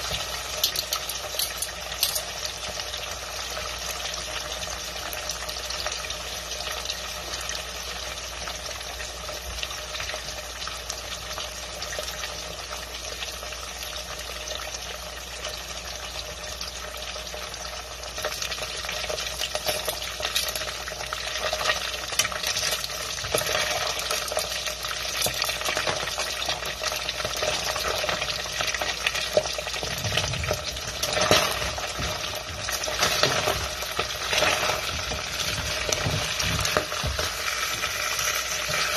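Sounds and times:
fish sizzling in oil: 0.0 - 38.9
spatula scraping a pot: 31.0 - 38.9.

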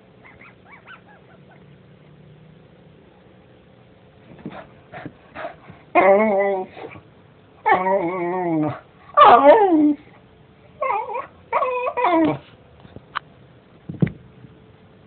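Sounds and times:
dog whining: 0.2 - 1.8, 5.9 - 7.0, 7.6 - 10.2, 10.8 - 12.5.

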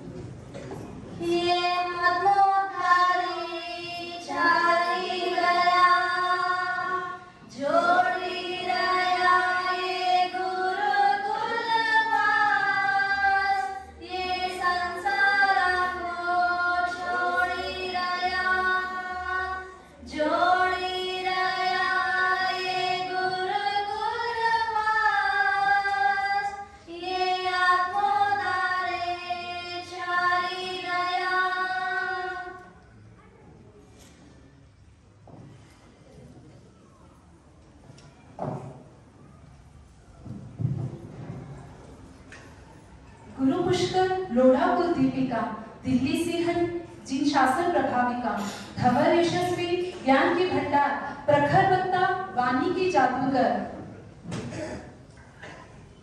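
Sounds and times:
woman singing unaccompanied: 1.2 - 32.7.

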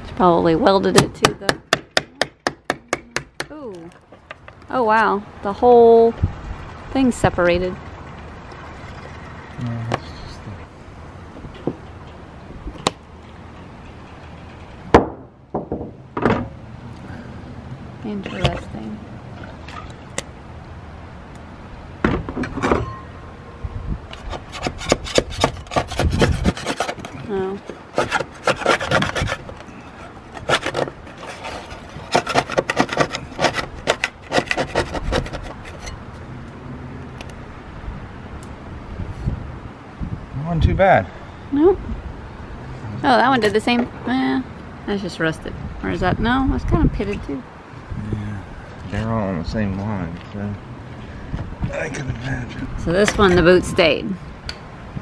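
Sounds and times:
metal scraper scraping: 24.1 - 36.0.

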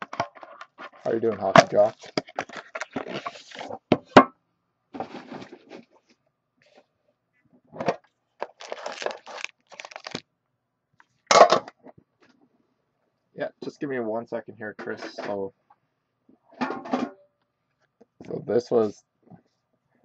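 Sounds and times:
plastic packaging crackling: 1.7 - 3.7, 8.4 - 10.2.

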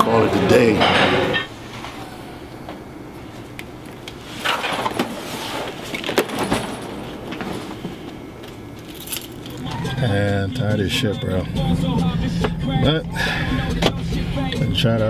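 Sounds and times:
steady low hum: 0.0 - 15.0
bag rustling: 4.2 - 9.8.

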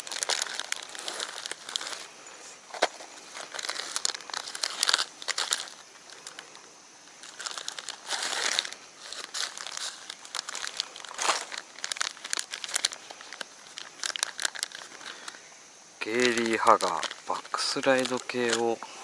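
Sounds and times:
drawstring bag rustling: 0.0 - 15.4
plastic packets crinkling: 0.0 - 15.4, 16.0 - 19.0.

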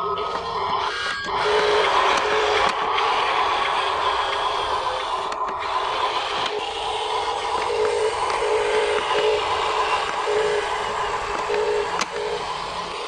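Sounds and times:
toy truck motor whirring: 0.0 - 13.0.

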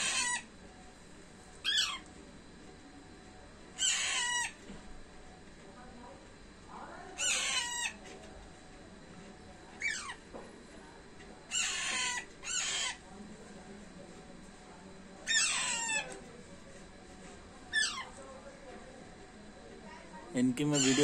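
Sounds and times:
parakeets calling: 0.0 - 0.5, 1.6 - 2.0, 3.8 - 4.6, 7.2 - 8.0, 11.5 - 13.0, 15.2 - 16.1, 17.7 - 18.1, 20.4 - 21.0.

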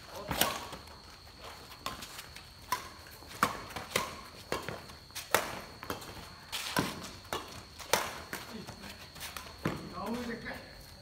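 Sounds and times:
shoes scuffing on concrete: 0.6 - 11.0
rackets striking shuttlecock: 1.8 - 8.6.

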